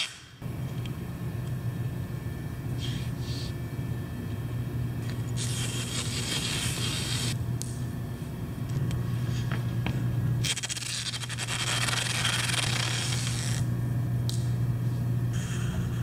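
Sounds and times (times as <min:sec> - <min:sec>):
adhesive tape ripping: 0:00.0 - 0:00.2, 0:10.4 - 0:13.6
steady low hum: 0:00.0 - 0:16.0.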